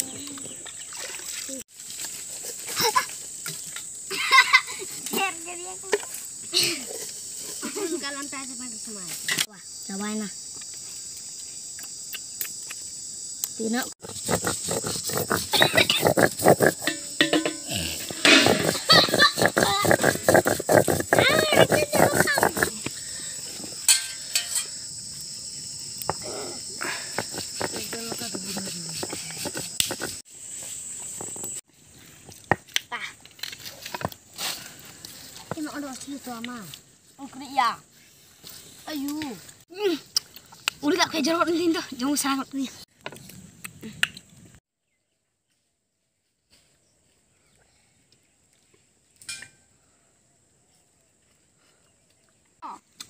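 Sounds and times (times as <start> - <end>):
faint outdoor background: 0.0 - 53.0
stone roller on grinding stone: 14.0 - 22.7, 27.1 - 30.2.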